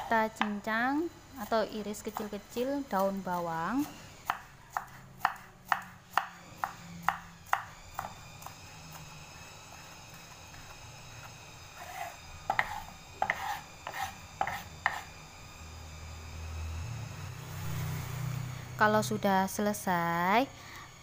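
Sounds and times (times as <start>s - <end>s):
knife chopping on wooden board: 0.0s - 0.6s, 4.2s - 9.1s, 11.8s - 15.1s.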